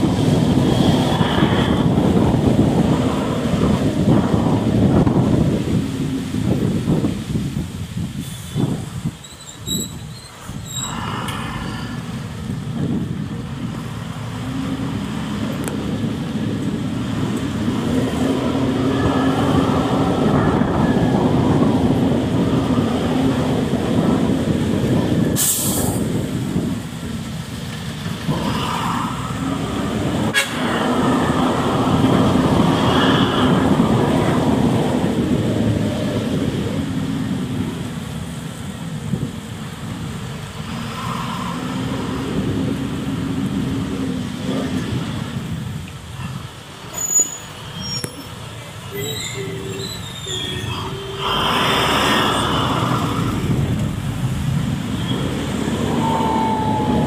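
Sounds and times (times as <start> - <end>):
bus engine and road noise: 0.0 - 57.0
sharp hiss: 25.4 - 26.2.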